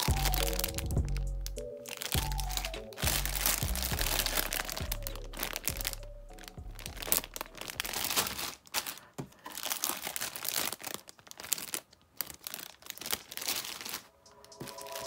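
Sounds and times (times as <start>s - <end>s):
background music: 0.0s - 8.1s, 13.0s - 15.0s
plastic bags crinkling: 0.0s - 15.0s.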